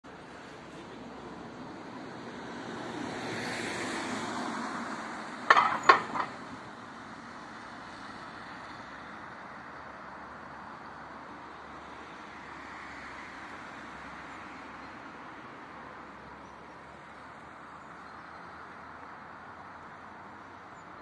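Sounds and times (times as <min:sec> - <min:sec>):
car tyre and engine noise: 0:00.1 - 0:21.0
wheels clunking over rails: 0:05.5 - 0:06.6.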